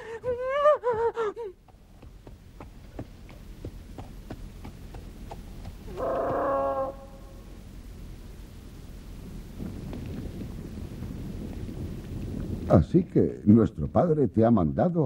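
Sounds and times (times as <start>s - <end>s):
hooves clip-clopping: 0.2s - 7.3s.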